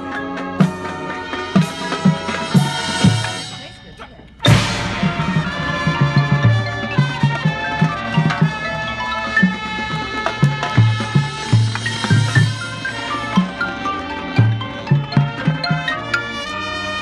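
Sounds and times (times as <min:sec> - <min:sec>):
brass chords: 0:00.0 - 0:17.0
marching band playing: 0:00.0 - 0:17.0
low drum beat: 0:02.2 - 0:08.5.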